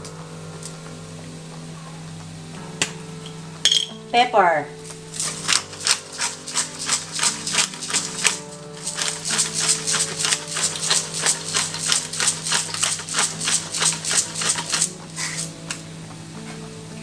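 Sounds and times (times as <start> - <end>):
pepper grinder crunching clicks: 5.1 - 15.8.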